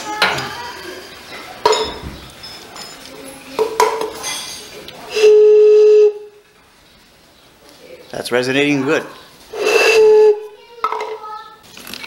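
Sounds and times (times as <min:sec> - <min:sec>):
metal tools clinking: 0:01.3 - 0:04.7
loud resonating tone: 0:09.5 - 0:10.6.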